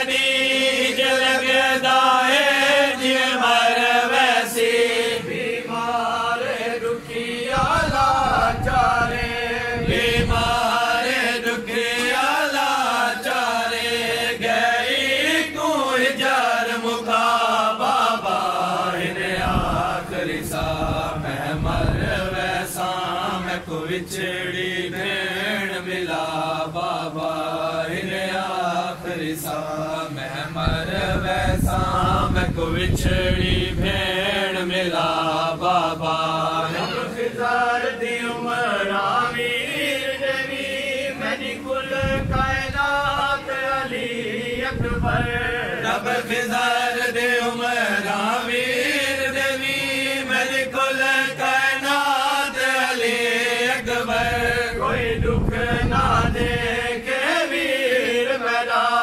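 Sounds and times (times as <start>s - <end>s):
man chanting a lament: 0.0s - 59.0s.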